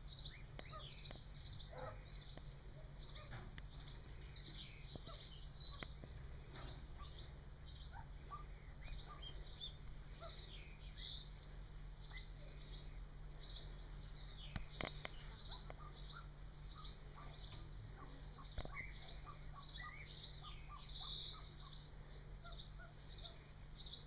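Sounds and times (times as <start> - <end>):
chicks peeping: 0.2 - 24.0.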